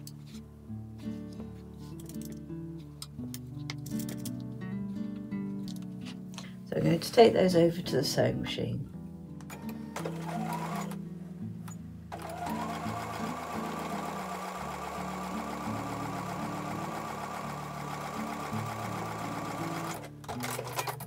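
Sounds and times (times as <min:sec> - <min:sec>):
electric sewing machine stitching: 0:09.5 - 0:11.0, 0:12.1 - 0:21.0.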